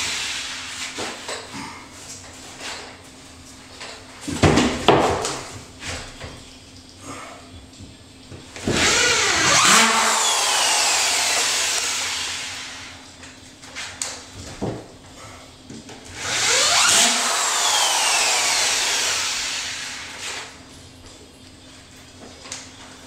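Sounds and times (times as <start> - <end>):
spiral saw cutting drywall: 8.7 - 13.0, 16.2 - 20.5.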